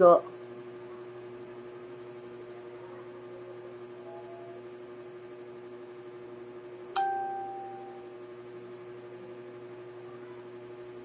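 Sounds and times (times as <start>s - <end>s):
steady hum: 0.0s - 11.0s
phone notification ding: 7.0s - 8.0s.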